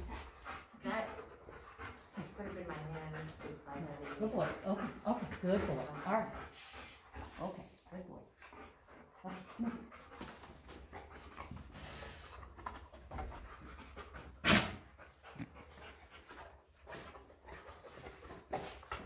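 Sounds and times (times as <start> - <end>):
dog panting: 0.0 - 19.0
dog sneezing: 14.4 - 14.8.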